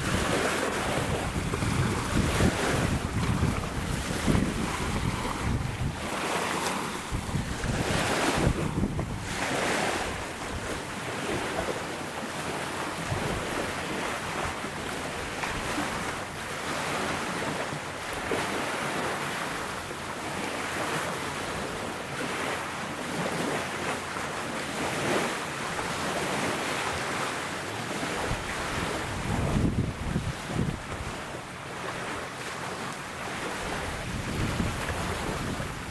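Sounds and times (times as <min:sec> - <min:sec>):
wind buffeting microphone: 0:00.0 - 0:11.9, 0:12.5 - 0:17.6, 0:27.9 - 0:32.0, 0:33.3 - 0:35.9.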